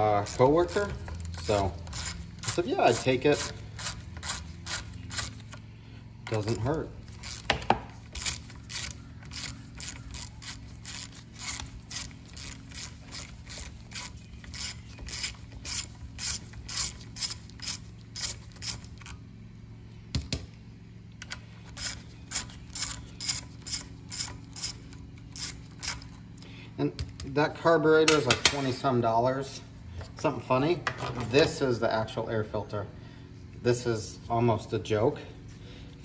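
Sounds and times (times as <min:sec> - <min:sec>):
ratchet wrench clicking: 0:00.0 - 0:05.6, 0:06.4 - 0:19.1, 0:21.7 - 0:26.2.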